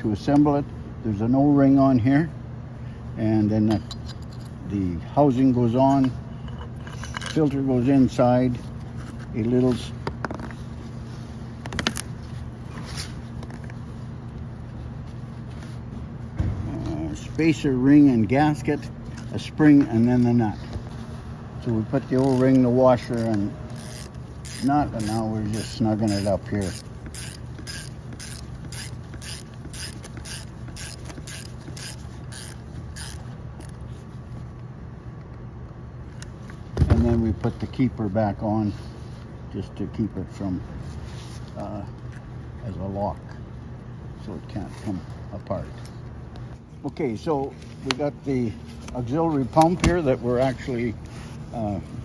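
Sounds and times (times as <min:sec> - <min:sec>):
steady low hum: 0:00.0 - 0:52.0
ratchet wrench clicking: 0:22.1 - 0:33.8.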